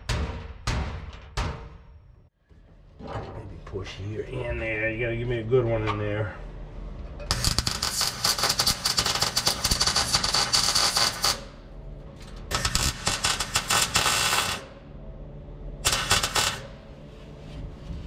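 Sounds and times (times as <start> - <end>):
welder crackling: 7.3 - 11.5, 12.5 - 14.6, 15.8 - 16.7.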